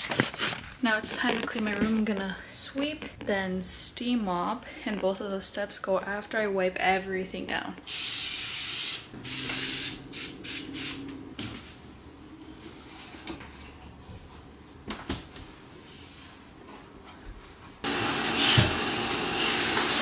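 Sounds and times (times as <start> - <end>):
spray bottle hissing: 7.9 - 11.1.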